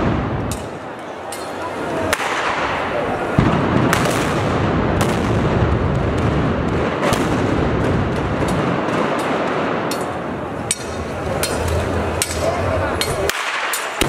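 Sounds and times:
crackle of gunfire: 2.1 - 10.9, 13.3 - 14.0.

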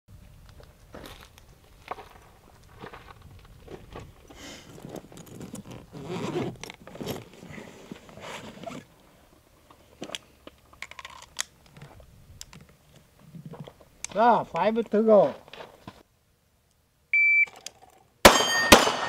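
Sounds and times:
fabric bag rustling: 4.6 - 8.9.

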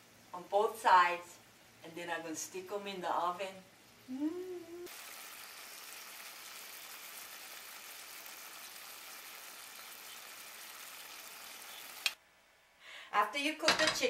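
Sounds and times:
brief vocal sound: 4.1 - 4.9
meat sizzling in a pan: 4.9 - 12.2.

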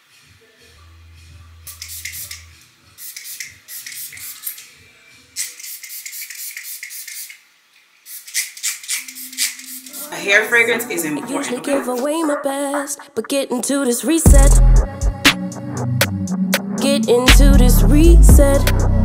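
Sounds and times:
faint music: 0.0 - 6.1, 8.9 - 19.0
spray bottle hissing sprays: 1.7 - 4.8, 5.4 - 10.2.

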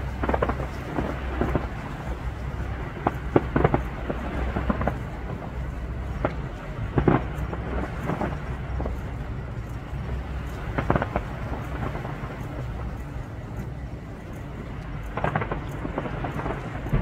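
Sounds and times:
distant fireworks booming: 0.0 - 17.0
sharp firework bangs: 15.2 - 17.0.

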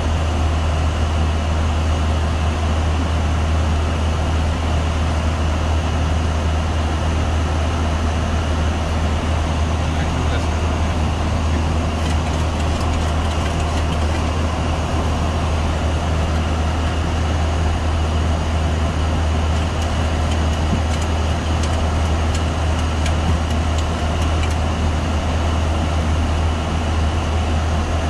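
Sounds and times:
airflow and engine rush: 0.0 - 28.0
deep constant hum: 0.0 - 28.0.

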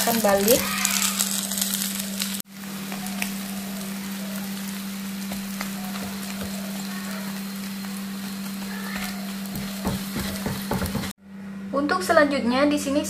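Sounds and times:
omelette sizzling in frying pan: 0.0 - 11.2.

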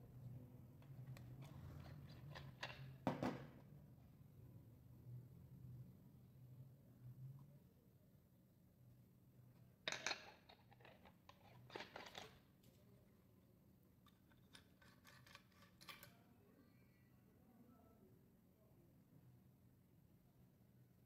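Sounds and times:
plastic and metal parts scraping: 1.1 - 3.0, 10.2 - 12.4, 14.3 - 16.1.

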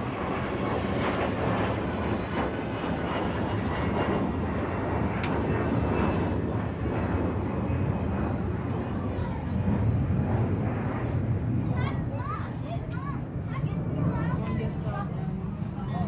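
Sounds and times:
jet airliner rumble overhead: 0.0 - 16.0
sharp click: 5.2 - 5.4.

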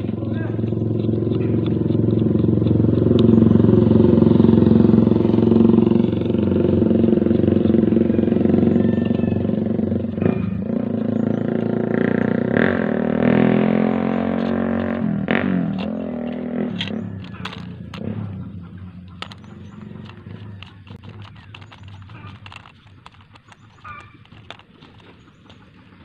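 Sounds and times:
engine running: 0.0 - 26.0
plastic parts clicking: 14.3 - 18.3, 19.0 - 26.0.

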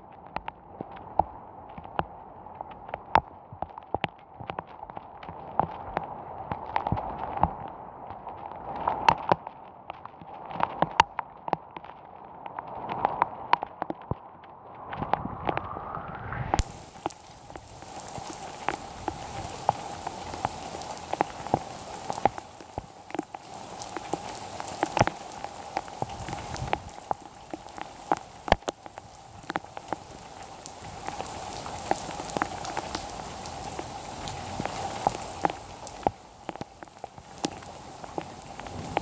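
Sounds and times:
heavy rain falling: 16.5 - 39.0.

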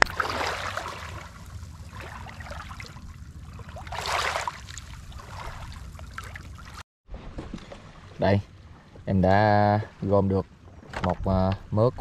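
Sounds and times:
water sloshing: 0.0 - 9.1.

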